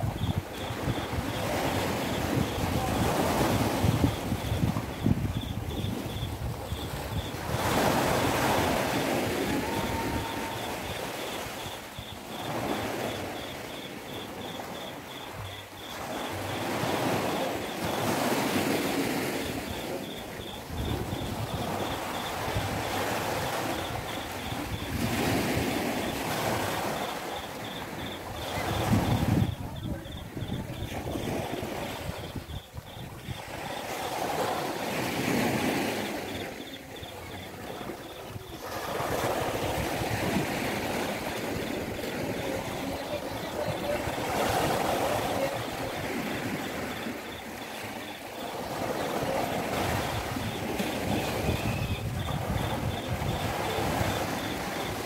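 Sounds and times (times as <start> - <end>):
wind rumbling on microphone: 0.0 - 36.4, 49.2 - 55.0
small waves washing on sand: 0.0 - 55.0.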